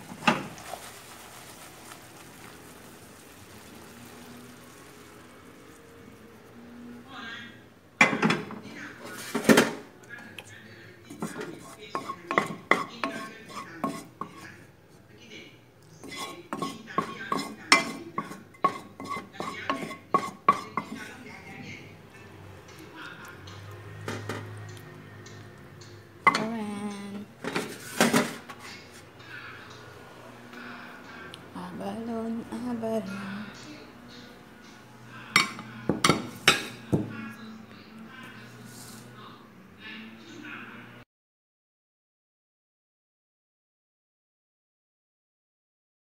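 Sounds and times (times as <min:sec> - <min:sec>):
wok clanking: 0:00.0 - 0:05.8, 0:11.1 - 0:14.4, 0:16.0 - 0:21.1
sauce bubbling in pan: 0:00.0 - 0:06.9
spatula clinking on pan and plate: 0:11.2 - 0:14.4, 0:16.0 - 0:21.1.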